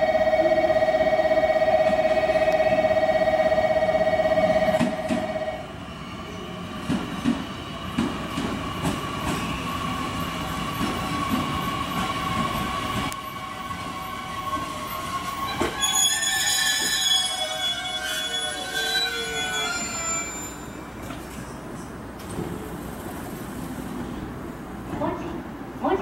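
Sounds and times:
electric train whine: 0.0s - 21.2s
train brakes squealing: 4.7s - 21.9s
train wheels clicking over rail joints: 6.8s - 9.5s.

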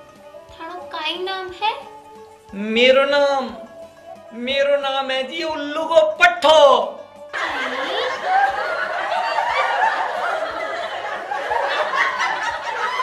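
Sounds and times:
canned laughter: 7.4s - 13.0s.

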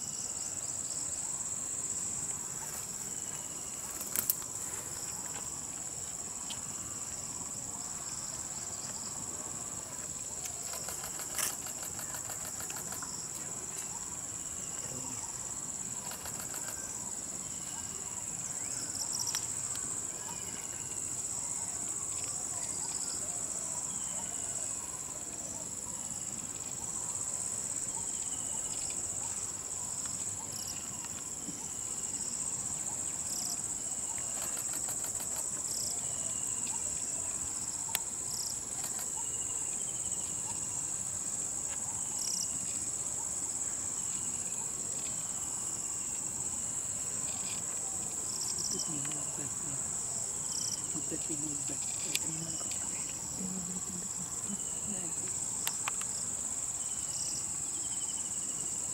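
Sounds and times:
insects droning: 0.0s - 58.9s.

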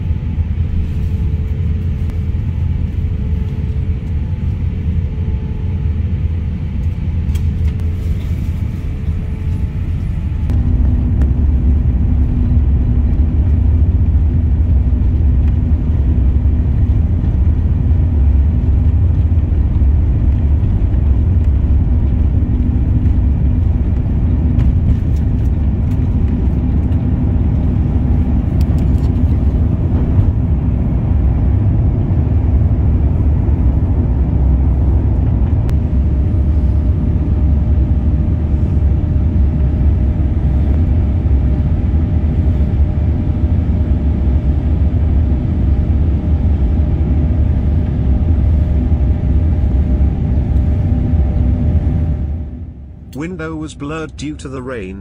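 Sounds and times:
faint steady whine: 0.0s - 55.0s
jet engines rumbling in cabin: 0.0s - 55.0s
rushing air: 7.8s - 43.2s.

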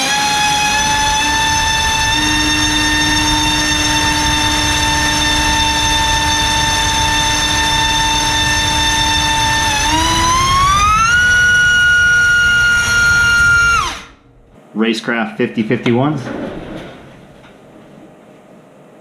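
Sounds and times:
electric motor propeller whine: 0.0s - 14.3s.

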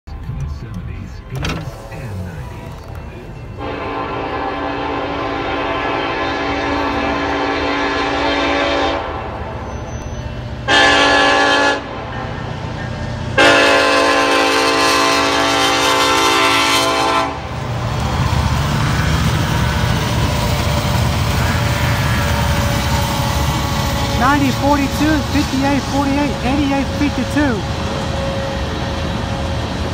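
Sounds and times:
train rumbling past: 0.1s - 29.9s
locomotive air horn blasts: 3.6s - 9.4s, 10.6s - 12.3s, 13.4s - 17.5s, 21.2s - 27.6s.

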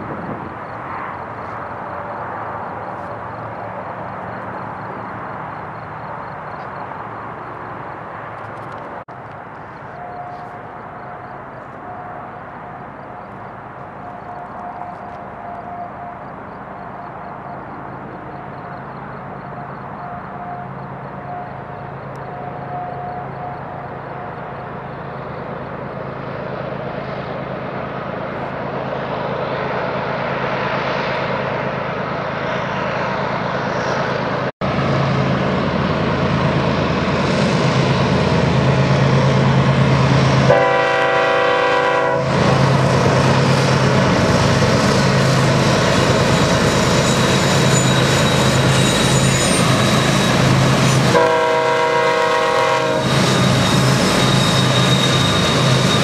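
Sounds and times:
diesel locomotive engine drone: 0.0s - 56.0s
train horn blasts: 40.4s - 42.7s, 47.6s - 56.0s.

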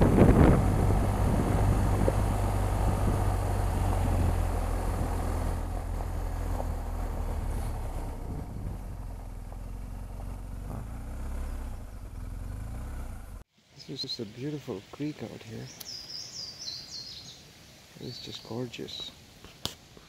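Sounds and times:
motorcycle engine at low speed: 0.0s - 13.5s
tyres on gravel road: 0.0s - 20.0s.

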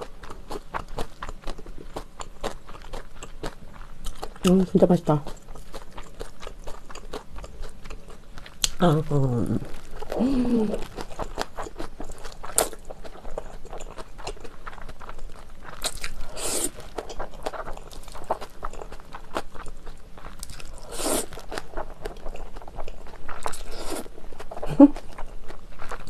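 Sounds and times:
wet chewing and smacking: 0.0s - 8.8s, 9.6s - 26.0s
noodles slurped: 20.8s - 21.6s.

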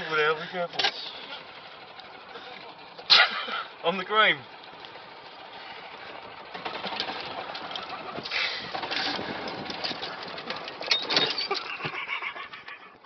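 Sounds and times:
golf buggy running: 0.0s - 13.0s
rattles and knocks: 4.6s - 12.0s.

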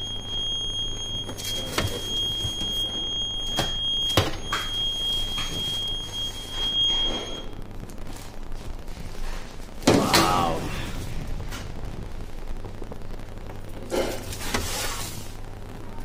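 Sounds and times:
low hum: 5.9s - 16.0s.

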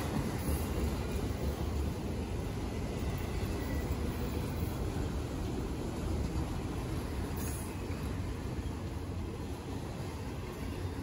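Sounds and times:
freight train rumbling past: 0.0s - 11.0s.

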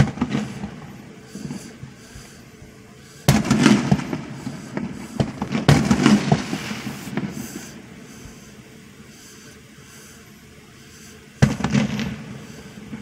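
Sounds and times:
fireworks bangs: 0.0s - 8.6s, 11.4s - 13.0s.

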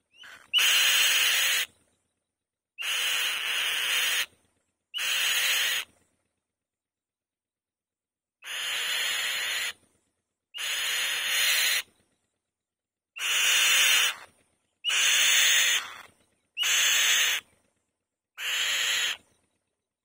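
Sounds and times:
bird rasping screams: 0.1s - 1.7s, 2.8s - 4.3s, 4.9s - 5.9s, 8.4s - 9.8s, 10.5s - 11.9s, 13.2s - 17.5s, 18.4s - 19.3s.

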